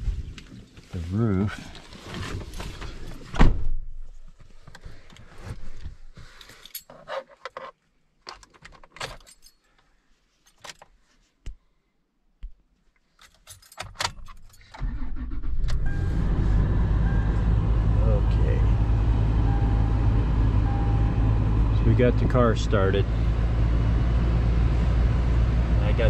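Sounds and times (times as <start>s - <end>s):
keys jingling and clicking: 8.4s - 9.7s, 13.2s - 14.8s
car engine starting and idling: 14.7s - 26.0s.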